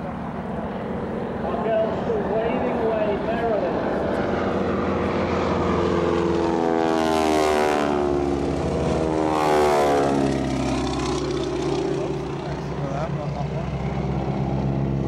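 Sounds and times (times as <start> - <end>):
biplane radial engine droning: 0.0 - 15.0.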